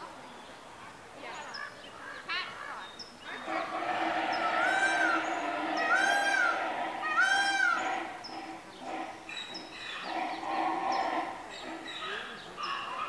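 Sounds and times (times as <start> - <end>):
zebra braying: 3.4 - 13.0.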